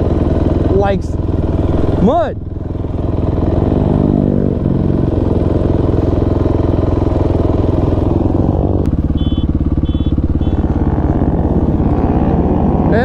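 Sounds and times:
dirt bike engine running: 0:00.0 - 0:13.0
short high electronic beep: 0:09.2 - 0:10.6.

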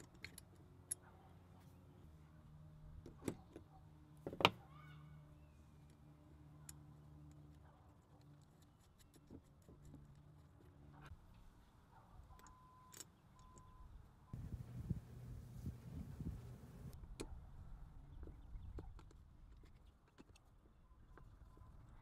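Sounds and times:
small metallic clicks: 0:00.0 - 0:01.1, 0:18.6 - 0:22.0
low steady hum: 0:12.3 - 0:17.0.

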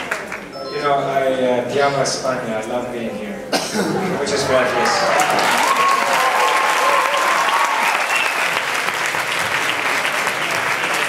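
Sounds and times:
audience applauding: 0:00.0 - 0:00.5, 0:04.3 - 0:11.0
person cheering: 0:04.8 - 0:08.0.

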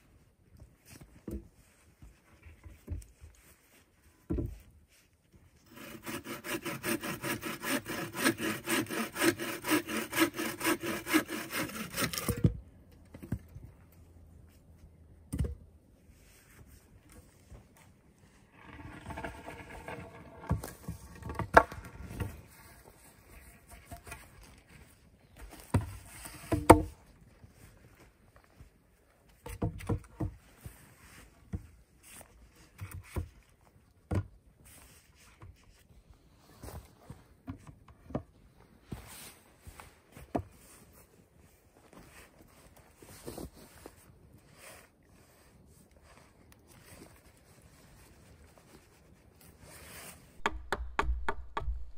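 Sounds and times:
wooden logs knocking together: 0:50.4 - 0:51.9.

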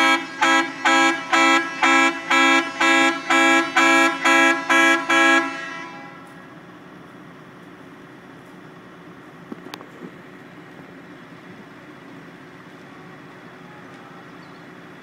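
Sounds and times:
truck horn tooting: 0:00.0 - 0:06.4.

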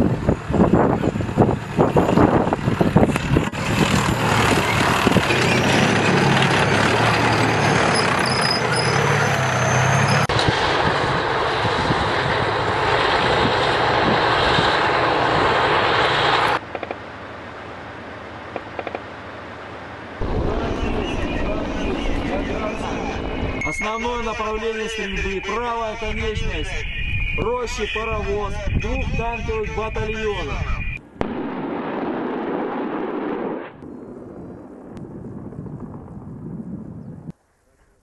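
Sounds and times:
tracked vehicle engine din: 0:00.0 - 0:23.6
sharp cracks and knocks: 0:18.6 - 0:19.1.

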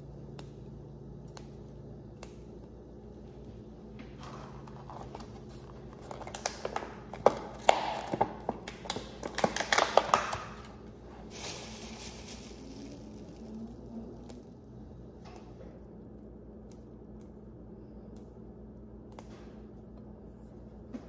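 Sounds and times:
plastic packaging crinkling: 0:04.6 - 0:14.6.

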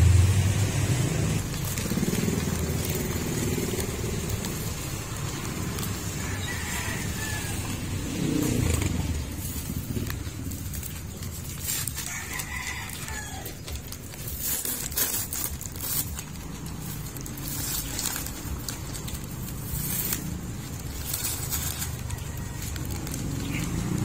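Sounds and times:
rooster crowing: 0:05.8 - 0:08.4, 0:11.9 - 0:13.7, 0:21.7 - 0:23.2.

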